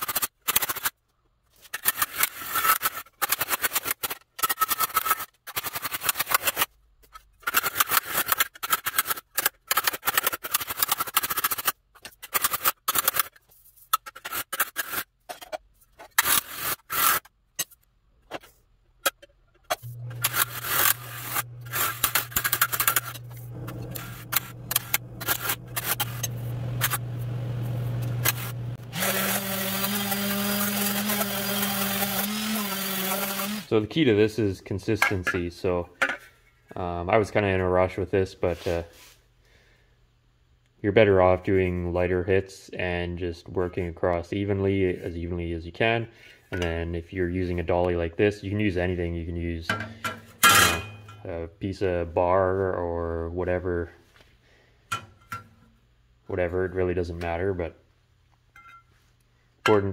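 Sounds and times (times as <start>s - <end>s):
electric sander humming: 19.8s - 33.7s.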